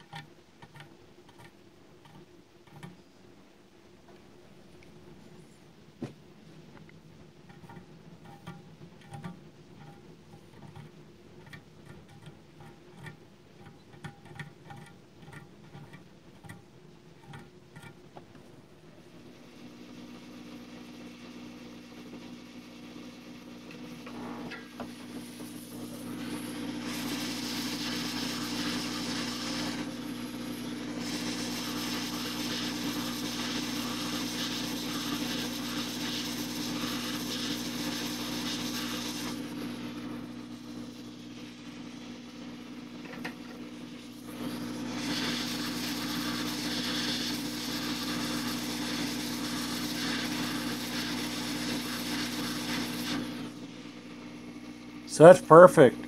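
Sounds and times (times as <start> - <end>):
soldering crackling hiss: 19.2 - 56.0.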